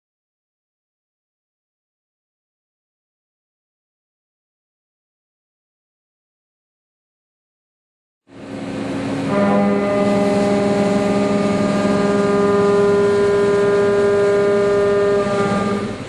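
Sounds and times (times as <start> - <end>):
milling cutter whine: 8.3 - 16.0.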